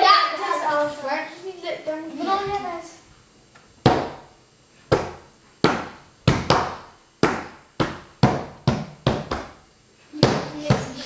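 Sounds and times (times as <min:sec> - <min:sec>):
hands slapping a tabletop: 0:03.8 - 0:04.2, 0:04.9 - 0:09.6.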